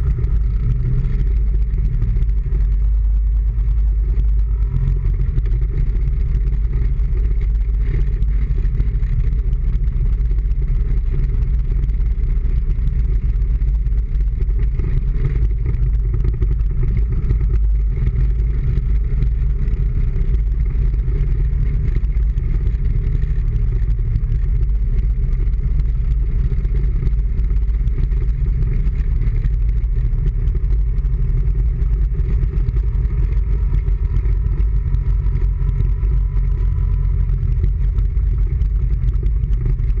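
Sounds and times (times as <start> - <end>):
vehicle driving low rumble: 0.0 - 40.0.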